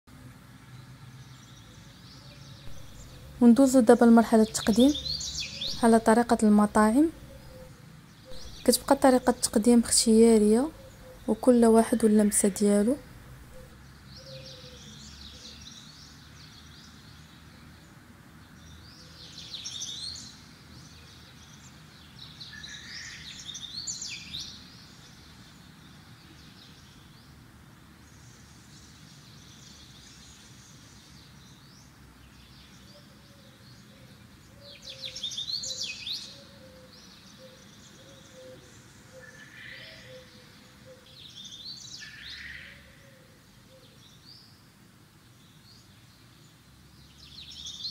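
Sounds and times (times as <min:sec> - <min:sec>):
faint steady hiss: 0:00.1 - 0:47.9
birds chirping: 0:01.3 - 0:16.8.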